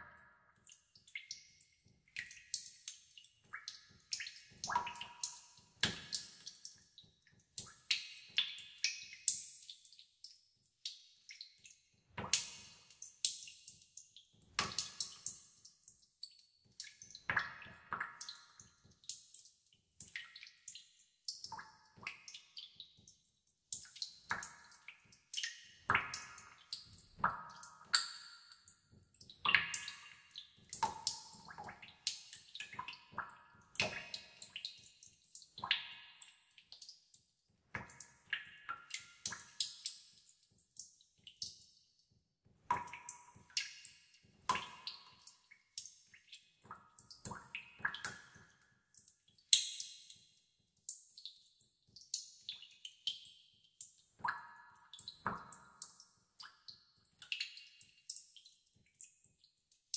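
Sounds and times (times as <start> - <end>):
water droplets plinking in cave: 0.0 - 37.0.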